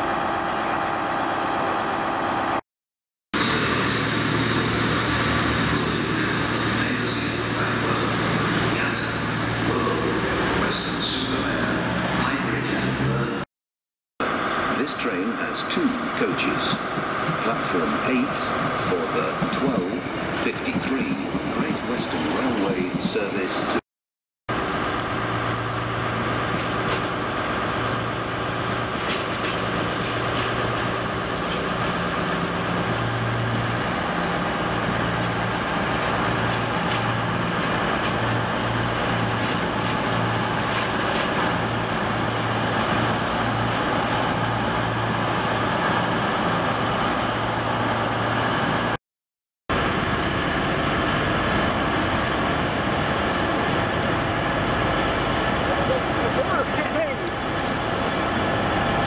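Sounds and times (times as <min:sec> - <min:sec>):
diesel train passing: 0:00.0 - 0:02.6, 0:03.4 - 0:13.4, 0:14.2 - 0:23.8, 0:24.5 - 0:49.0, 0:49.7 - 0:59.0.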